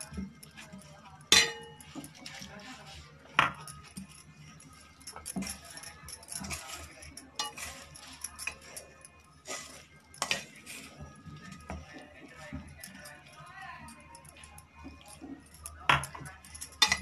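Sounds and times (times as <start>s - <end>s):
bangles jingling: 0.0s - 17.0s
leaves scraping in bowl: 1.8s - 12.7s.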